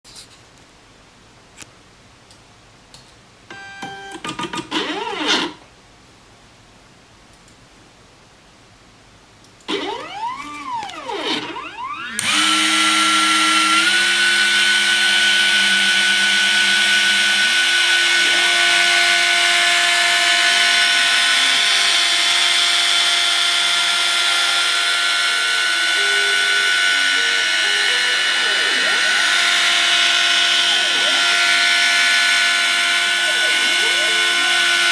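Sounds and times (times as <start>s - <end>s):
stepper motors whining: 4.7s - 5.6s, 9.6s - 34.9s
spindle high whine milling plastic: 9.7s - 34.9s.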